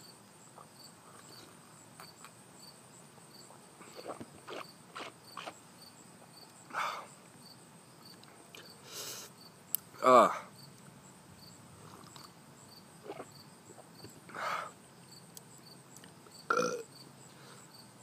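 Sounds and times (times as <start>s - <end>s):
crickets chirping: 0.0s - 18.0s
hissing breath: 8.6s - 9.4s, 14.3s - 14.8s
loud exhale: 8.8s - 9.3s, 14.3s - 14.8s.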